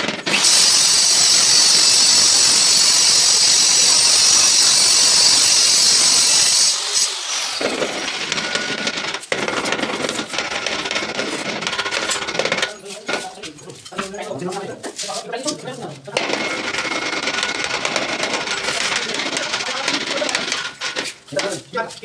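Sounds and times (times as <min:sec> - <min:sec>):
power tool high hiss and whine: 0:00.3 - 0:07.6.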